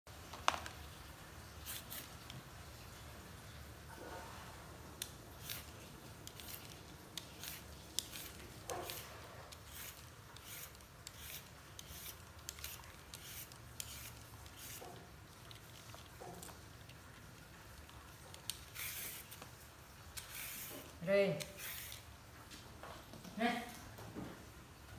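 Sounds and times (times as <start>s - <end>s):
peeler scraping vegetable skin: 1.6s - 2.3s, 5.0s - 22.1s.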